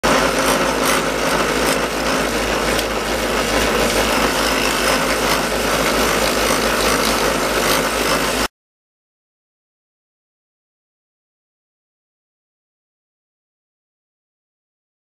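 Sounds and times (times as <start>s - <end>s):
drill press spinning: 0.0s - 8.5s
rotary saw cutting metal sheet: 0.0s - 8.5s.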